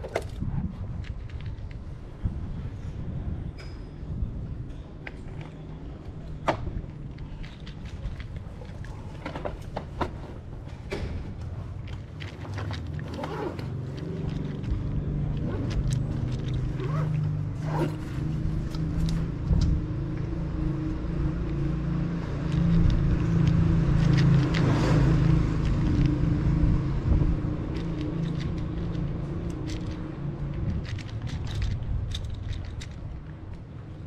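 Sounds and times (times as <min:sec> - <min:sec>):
cat crunching dry kibble: 0:07.0 - 0:09.1, 0:11.8 - 0:16.7, 0:22.4 - 0:33.4.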